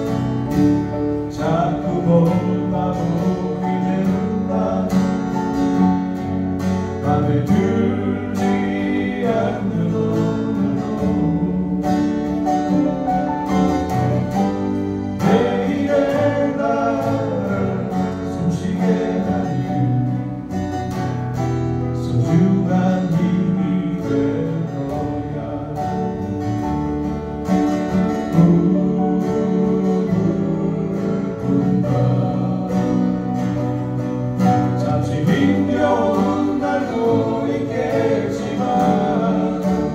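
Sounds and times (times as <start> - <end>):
acoustic guitars: 0.0 - 39.9
electric bass: 0.0 - 39.9
keyboard: 0.0 - 39.9
voices singing: 1.3 - 5.5, 7.0 - 13.1, 15.1 - 20.2, 34.7 - 39.9.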